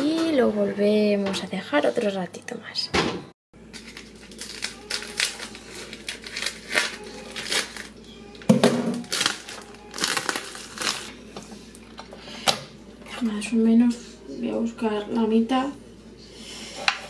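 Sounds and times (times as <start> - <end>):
plastic film crinkling: 3.7 - 8.0, 8.9 - 11.1.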